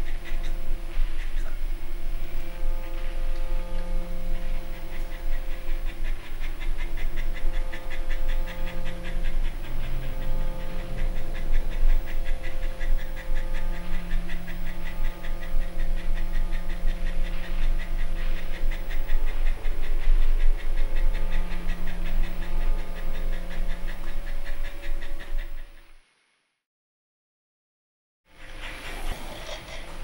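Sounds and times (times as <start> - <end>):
steady low hum: 0.0 - 26.2, 28.3 - 30.0
dog panting: 4.6 - 25.8, 28.5 - 30.0.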